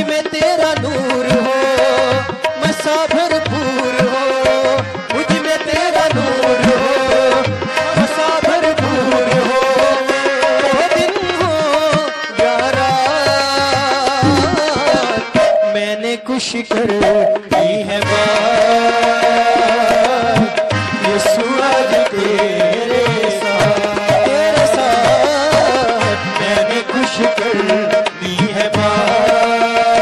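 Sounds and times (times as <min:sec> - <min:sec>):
keyboard melody with vibrato: 0:00.0 - 0:30.0
tabla rhythm: 0:00.0 - 0:30.0.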